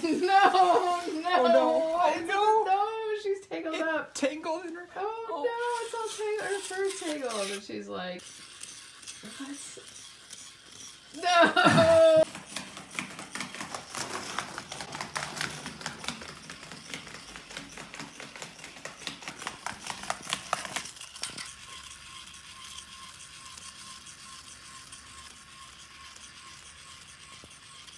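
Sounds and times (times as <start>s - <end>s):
toy robot whirring: 0.0s - 2.9s, 4.2s - 27.9s
toy robot clattering on floor: 5.6s - 7.6s, 12.2s - 27.9s.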